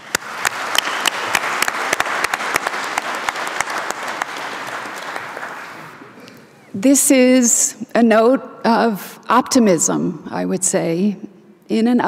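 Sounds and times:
single sharp claps: 0.0 - 5.7
audience applauding: 0.0 - 6.5.

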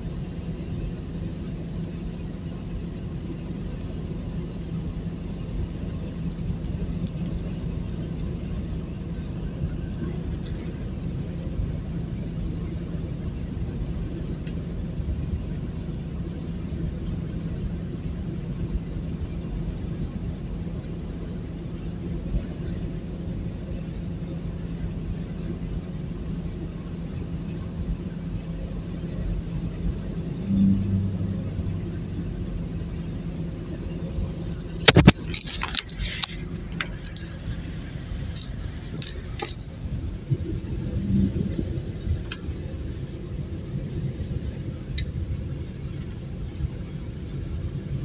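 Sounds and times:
truck engine and road noise: 0.0 - 48.0
sharp clicks and clatter: 34.4 - 37.6, 38.2 - 39.8.

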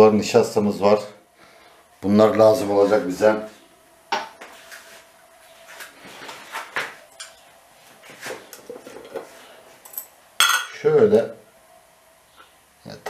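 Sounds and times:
kitchenware clicking and clinking: 9.9 - 10.8.

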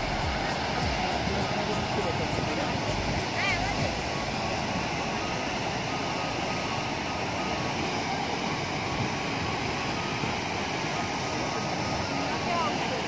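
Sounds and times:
stream rushing over boulders: 0.0 - 13.0.

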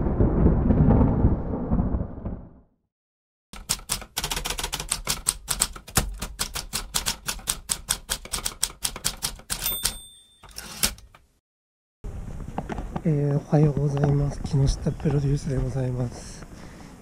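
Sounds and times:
typewriter keys clattering: 3.6 - 11.2
typewriter bell ding: 9.5 - 11.1.

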